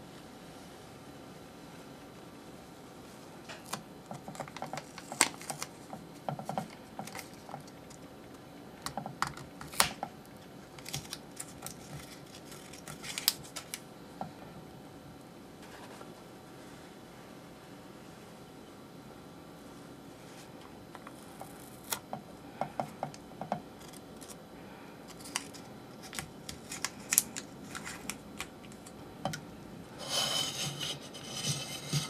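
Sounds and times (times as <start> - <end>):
hands handling paper and tape: 3.5 - 8.0, 10.7 - 13.8, 25.1 - 29.0.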